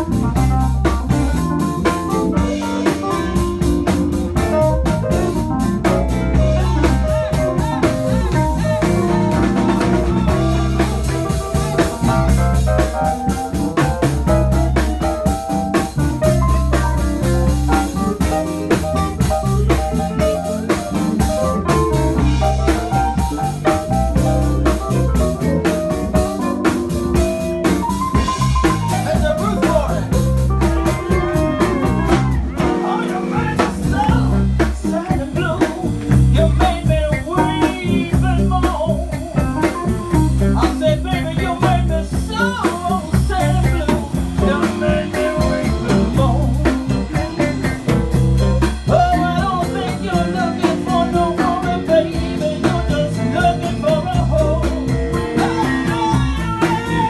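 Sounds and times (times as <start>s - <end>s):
keyboard lead: 0.0s - 57.0s
live blues band playing: 0.0s - 57.0s.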